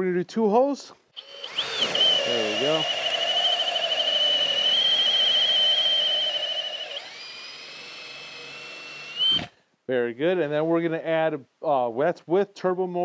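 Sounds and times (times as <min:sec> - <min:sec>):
drill motor whining: 0:01.2 - 0:09.5.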